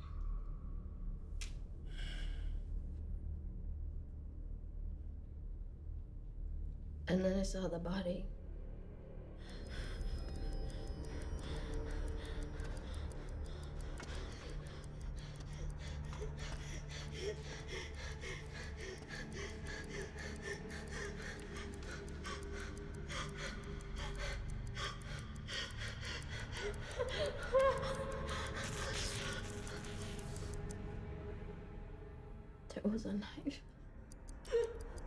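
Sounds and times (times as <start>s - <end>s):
fast ticking: 9.5s - 30.8s
woman gasping and whimpering: 11.1s - 30.2s.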